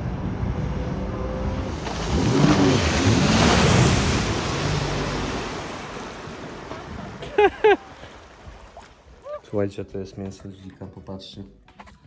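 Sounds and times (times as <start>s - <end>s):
watercraft engine revving: 0.0s - 7.3s
water spray rushing: 1.6s - 7.8s.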